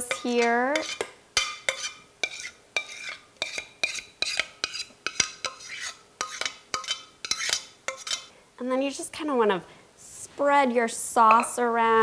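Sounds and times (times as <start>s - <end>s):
metal utensil scraping saucepan: 0.0s - 8.3s.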